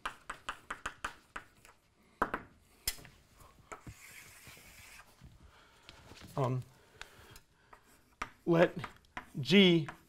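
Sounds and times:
chalk tapping and scratching: 0:00.0 - 0:01.9, 0:03.7 - 0:05.2, 0:07.0 - 0:10.0
chalk scraping stroke: 0:03.8 - 0:05.2.

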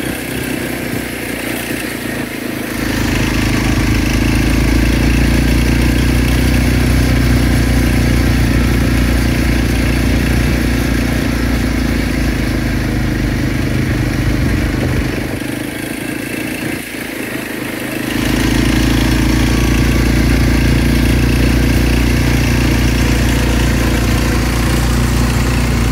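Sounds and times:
small petrol engine running: 0:00.0 - 0:25.9.

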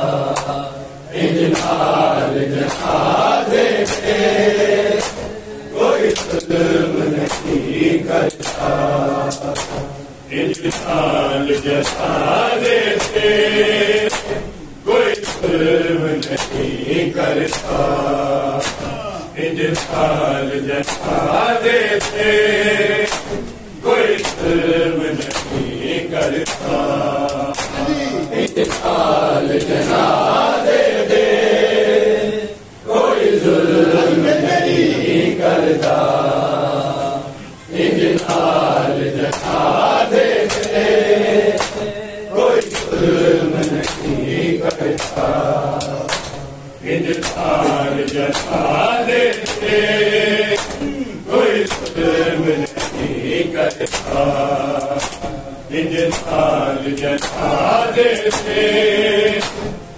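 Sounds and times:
men chanting in chorus: 0:00.0 - 0:59.9
open-hand chest slaps: 0:01.4 - 0:01.9, 0:02.5 - 0:04.3, 0:04.9 - 0:05.4, 0:06.0 - 0:06.6, 0:07.2 - 0:14.5, 0:15.1 - 0:15.6, 0:16.2 - 0:24.6, 0:25.2 - 0:29.9, 0:39.2 - 0:42.0, 0:42.6 - 0:49.9, 0:50.5 - 0:58.6, 0:59.3 - 0:59.8.

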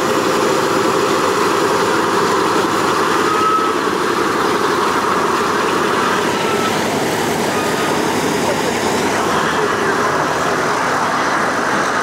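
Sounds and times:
piston engines throbbing: 0:00.0 - 0:12.0
short high squeal: 0:03.0 - 0:04.1, 0:05.9 - 0:08.4.

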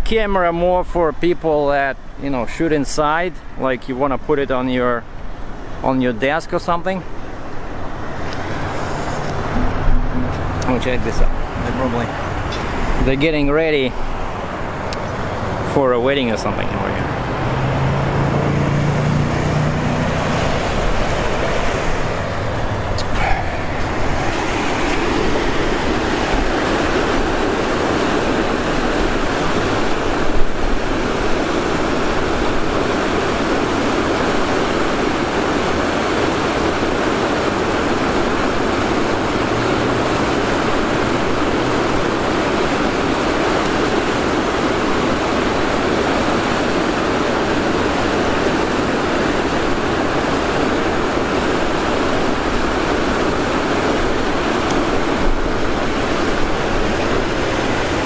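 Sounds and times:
river water pouring over weir: 0:00.0 - 0:58.0
brief knock: 0:09.6 - 0:10.4.

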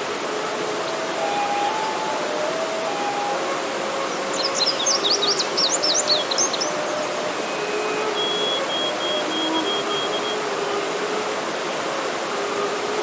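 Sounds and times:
bamboo flute long notes: 0:00.0 - 0:13.0
stream rushing over rocks: 0:00.0 - 0:13.0
bird chirping: 0:04.1 - 0:10.4.

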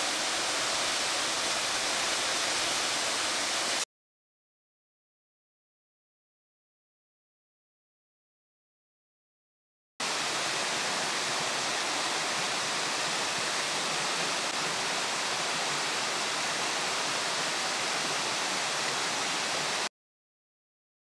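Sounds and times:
waterfall hissing: 0:00.0 - 0:03.8, 0:10.0 - 0:19.9.

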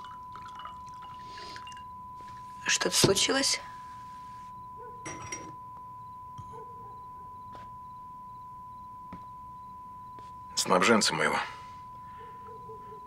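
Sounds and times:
glassware clinking on table: 0:00.0 - 0:02.4, 0:05.0 - 0:05.7
steady high television tone: 0:00.0 - 0:13.0.

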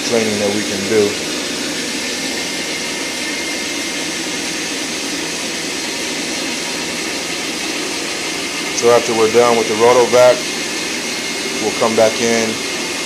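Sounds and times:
carpet extraction machine hissing: 0:00.0 - 0:13.0.

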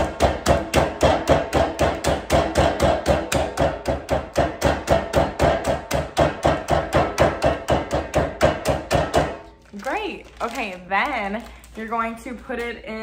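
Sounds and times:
pounding nuts on countertop: 0:00.0 - 0:09.5.

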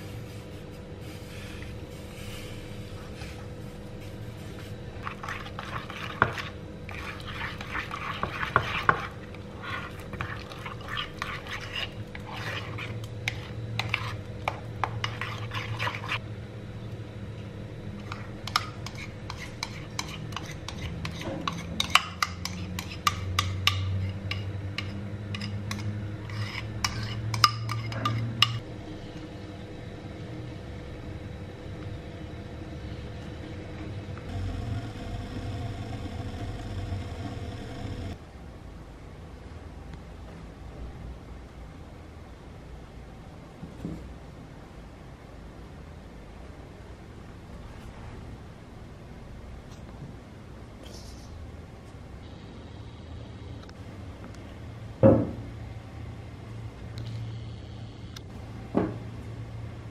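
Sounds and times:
low steady hum: 0:00.0 - 0:59.9
spoon scraping batter: 0:04.0 - 0:16.2, 0:18.0 - 0:28.6
fork beating batter in bowl: 0:04.5 - 0:16.2, 0:18.0 - 0:28.6.

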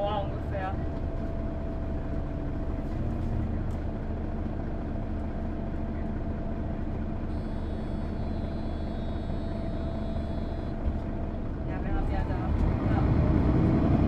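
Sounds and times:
bus engine hum: 0:00.0 - 0:14.0
faint high whine: 0:07.2 - 0:10.9.

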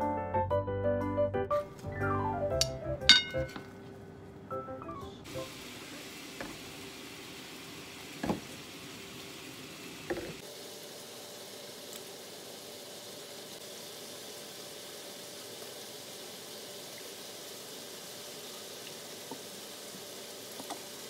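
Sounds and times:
chicken sizzling in a pan: 0:05.2 - 0:21.0.

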